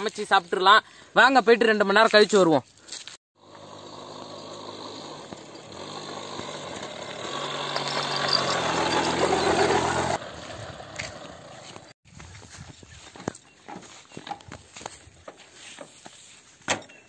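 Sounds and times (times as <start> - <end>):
motorcycle engine approaching: 3.4 - 12.0.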